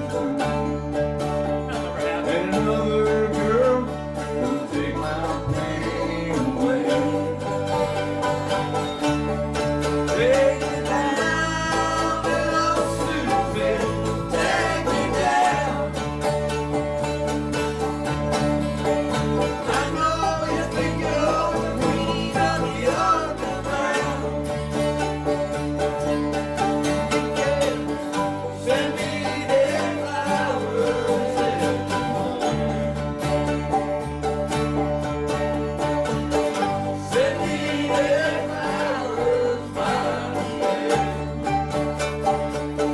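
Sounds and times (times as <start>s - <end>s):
bass guitar notes: 0.0s - 42.9s
country band playing: 0.0s - 42.9s
man singing: 1.7s - 7.6s, 10.1s - 16.0s, 19.6s - 24.4s, 27.1s - 32.7s, 37.0s - 41.6s.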